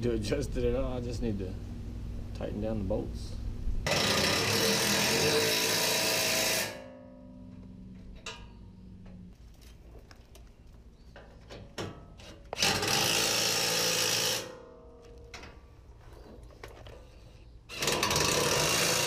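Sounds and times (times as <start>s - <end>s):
impact wrench running: 3.9s - 6.8s, 12.6s - 14.6s, 17.7s - 19.0s.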